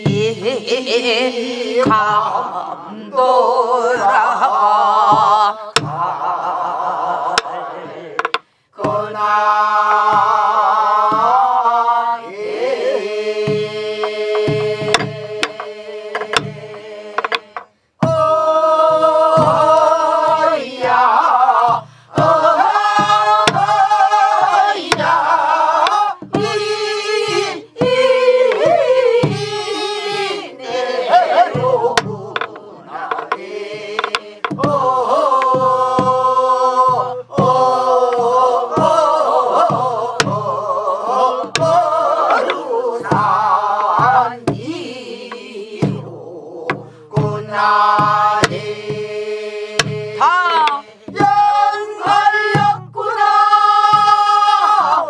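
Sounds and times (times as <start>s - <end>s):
group singing folk song: 0.0s - 55.0s
barrel drum strokes: 13.4s - 55.0s.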